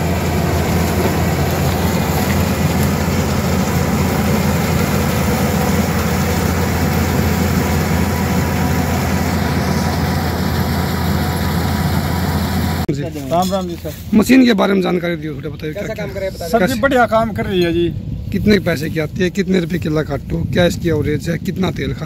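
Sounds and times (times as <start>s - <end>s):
combine harvester engine drone: 0.0s - 12.9s.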